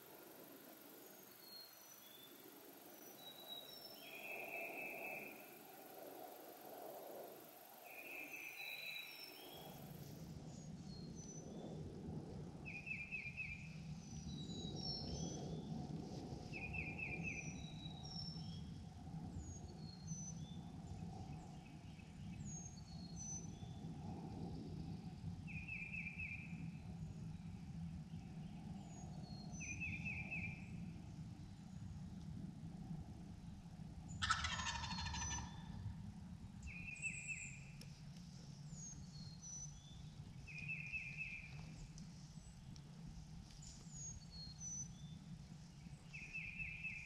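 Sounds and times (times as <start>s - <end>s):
songbirds chirping: 7.8s - 11.8s, 33.4s - 47.0s.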